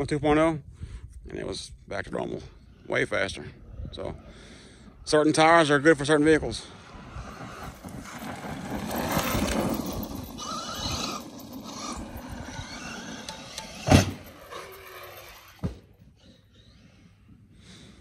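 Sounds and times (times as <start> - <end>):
tyres rushing over dirt: 5.6 - 15.8
rc truck motor whining: 6.7 - 17.2.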